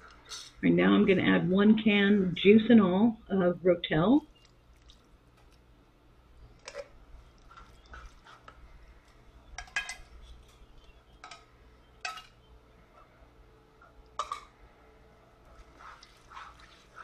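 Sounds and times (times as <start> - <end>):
can and spoon clinking on pan: 9.6 - 10.1, 11.2 - 12.4, 14.2 - 14.5.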